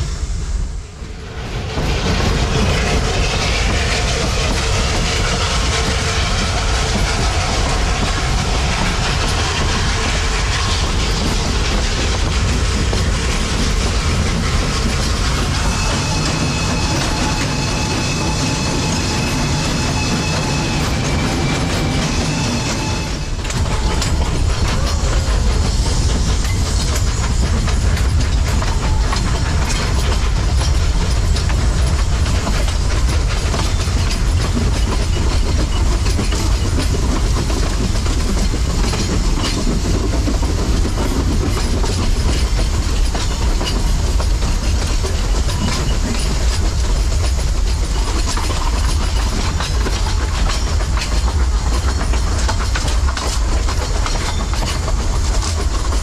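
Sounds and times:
steam train rumble: 0.0s - 56.0s
wheels clicking over rail joints: 23.4s - 56.0s.

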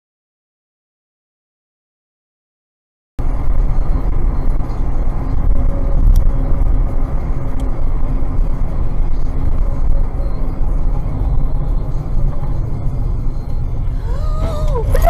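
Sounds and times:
car engine and road noise: 3.2s - 15.0s.

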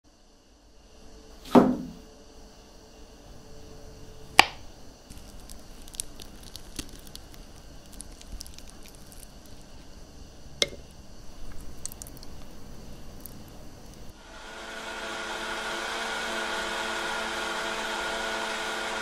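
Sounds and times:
knife squishing through fruit: 5.1s - 10.0s, 10.6s - 14.1s.

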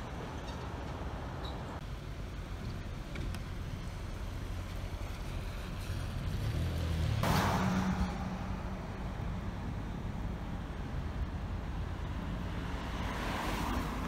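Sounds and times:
car road rumble on wet street: 0.2s - 14.0s
vehicle passing on wet road: 4.5s - 9.2s.

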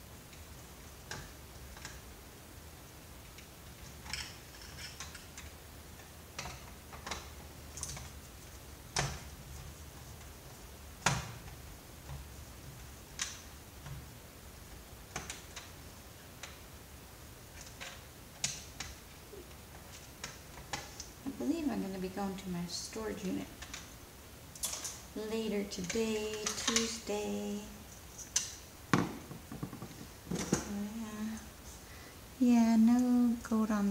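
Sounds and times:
loud knocks: 28.9s - 30.6s.

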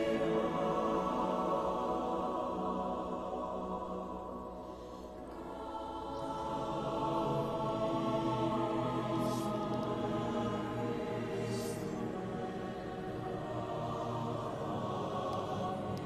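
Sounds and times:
choir-like voices music: 0.0s - 16.0s.

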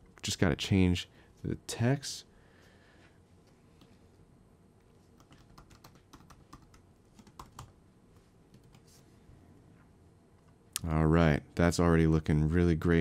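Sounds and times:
faint keyboard typing: 4.8s - 9.0s.

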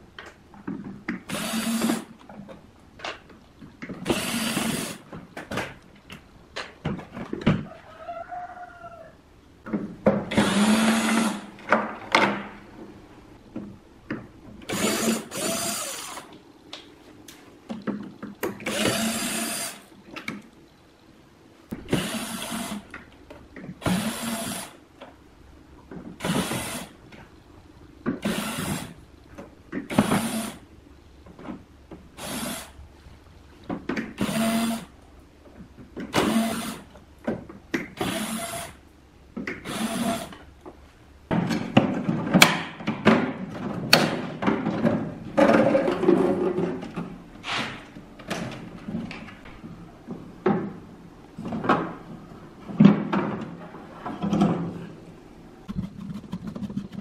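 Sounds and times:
cordless drill running in bursts: 1.3s - 2.0s, 4.1s - 5.0s, 14.7s - 16.2s, 18.7s - 19.8s, 22.0s - 22.8s, 23.9s - 24.8s, 39.7s - 40.3s.

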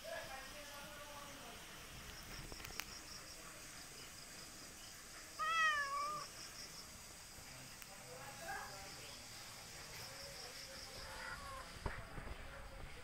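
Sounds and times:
cat meowing: 5.4s - 6.3s.

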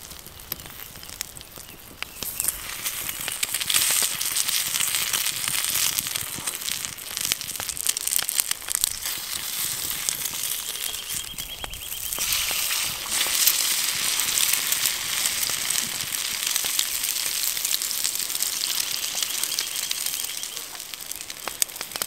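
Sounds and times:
food sizzling in skillet: 0.0s - 22.0s.

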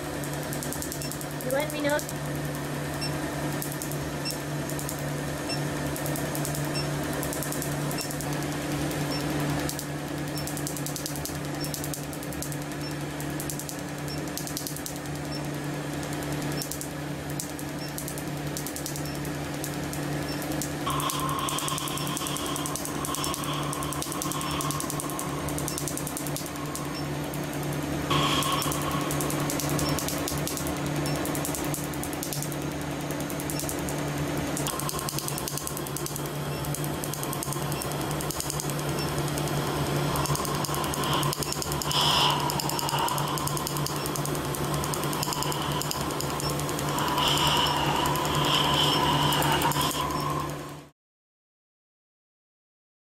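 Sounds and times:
steady machine hum: 0.0s - 50.9s
laser firing sharp clicks: 0.2s - 2.3s, 3.0s - 50.7s.

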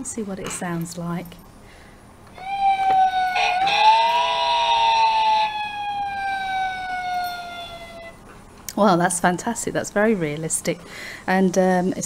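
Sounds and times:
toy fire engine siren wailing: 2.3s - 8.2s.

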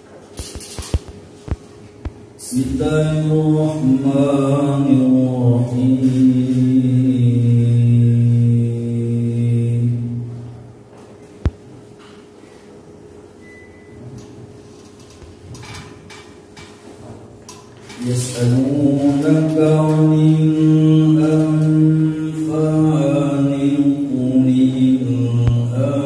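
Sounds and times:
faint steady hum: 0.0s - 26.0s
man chanting: 2.4s - 10.5s, 18.0s - 26.0s.

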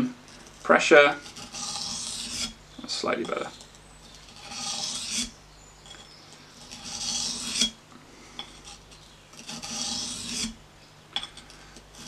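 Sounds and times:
knife scraping on sharpening stone: 0.3s - 2.6s, 3.2s - 7.8s, 8.4s - 10.6s.

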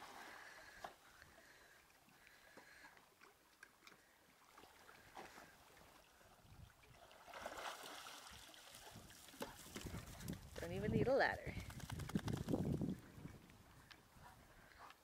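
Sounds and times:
water lapping and splashing: 0.0s - 10.6s.

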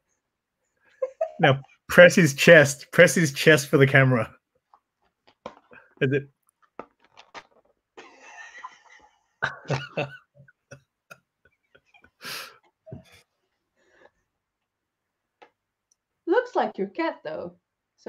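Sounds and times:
people laughing: 8.0s - 10.2s
breathy burst: 12.2s - 12.6s.

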